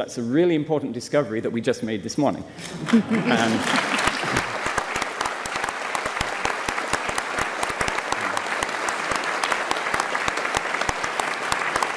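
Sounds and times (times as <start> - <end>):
audience applauding: 2.8 - 11.9.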